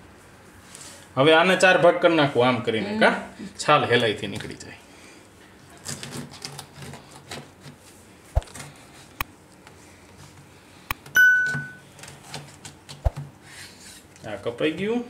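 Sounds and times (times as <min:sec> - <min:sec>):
bright bell chime: 0:11.2 - 0:11.8.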